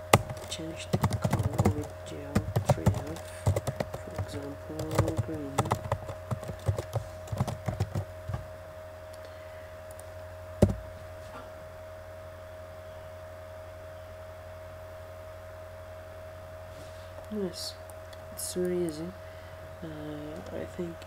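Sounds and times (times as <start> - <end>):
electrical hum: 0.0 - 21.0
keyboard keys clicking: 0.1 - 8.4
sharp knock: 10.6 - 10.8.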